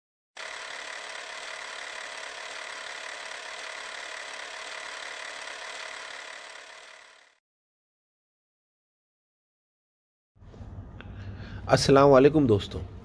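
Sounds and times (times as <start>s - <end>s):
mechanical whirring and rattling: 0.4s - 7.4s.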